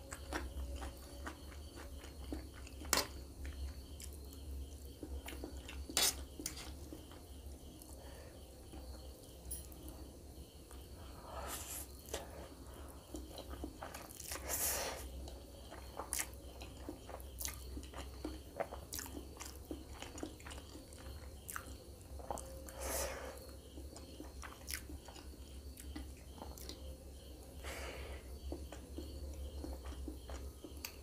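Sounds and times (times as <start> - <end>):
wet chewing and mouth clicks: 0.0 - 7.2, 15.2 - 22.8, 23.4 - 26.9, 28.4 - 31.0.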